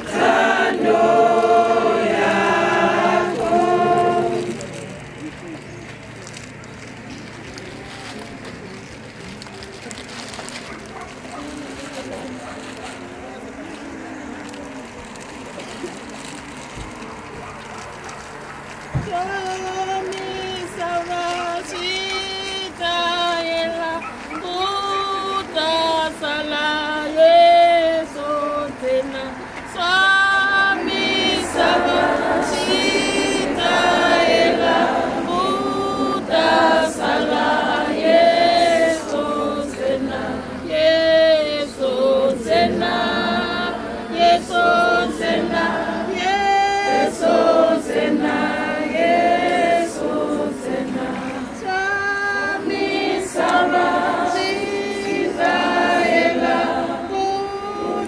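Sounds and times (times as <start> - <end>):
choir singing a cappella: 0.0 - 4.8, 19.9 - 58.0.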